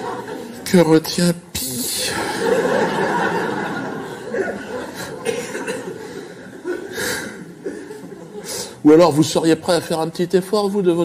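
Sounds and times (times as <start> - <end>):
audience laughing: 0.0 - 0.6, 2.0 - 8.8.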